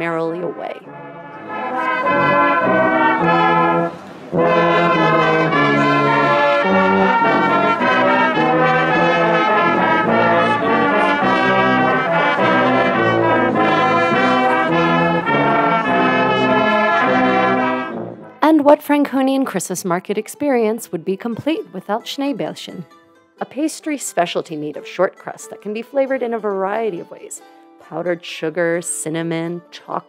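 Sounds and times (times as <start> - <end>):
brass band playing: 0.0 - 18.6.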